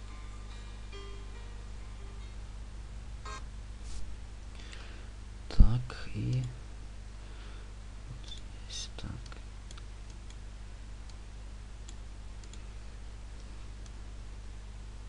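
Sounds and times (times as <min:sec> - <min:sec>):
low electrical hum: 0:00.0 - 0:15.0
computer mouse clicks: 0:11.8 - 0:12.6.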